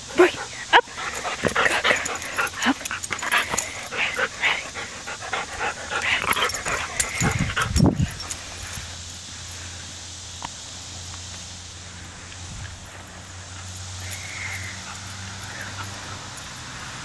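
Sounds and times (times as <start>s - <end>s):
dog making excited play noises: 0.0s - 8.8s.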